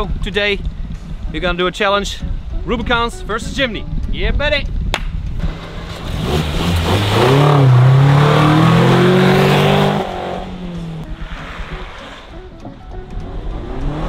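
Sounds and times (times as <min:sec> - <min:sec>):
car engine revving: 0:05.4 - 0:12.5, 0:13.2 - 0:14.0.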